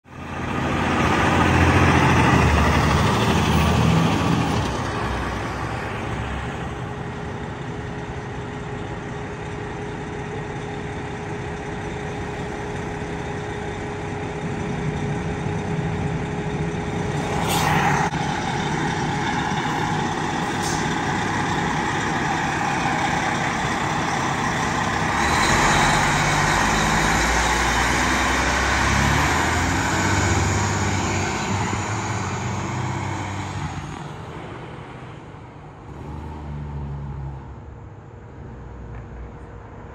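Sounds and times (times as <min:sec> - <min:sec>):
fire truck diesel engines: 0:00.0 - 0:39.9.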